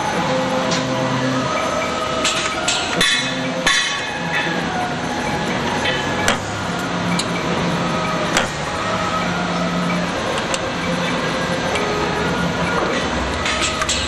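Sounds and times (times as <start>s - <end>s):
machine motor humming: 0.0s - 14.0s.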